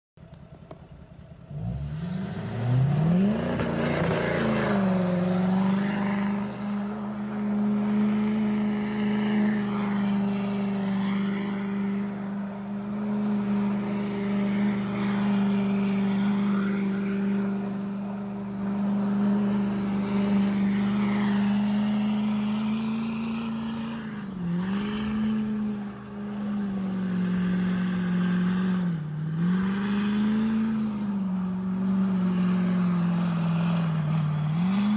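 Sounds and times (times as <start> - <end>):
diesel engine revving: 1.4 - 34.9
tyres spinning on snow: 1.5 - 34.9.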